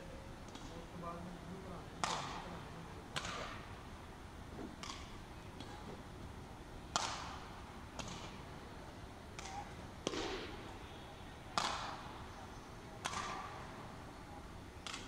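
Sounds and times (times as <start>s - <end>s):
rackets smacking shuttlecock: 2.0s - 2.4s, 3.2s - 3.7s, 4.7s - 5.8s, 6.9s - 8.4s, 9.4s - 10.7s, 11.6s - 12.2s, 13.0s - 13.7s.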